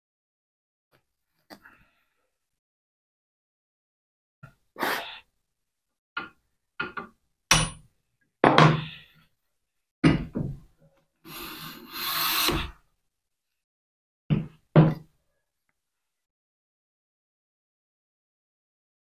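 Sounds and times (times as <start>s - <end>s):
plane rasping across board: 11.3s - 12.8s.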